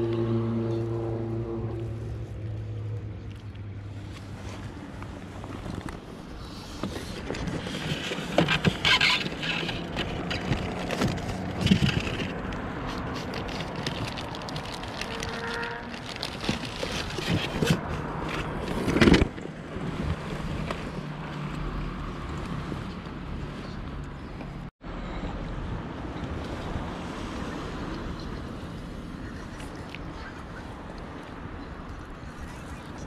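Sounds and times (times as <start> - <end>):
plastic bags rustling: 13.0 - 17.7.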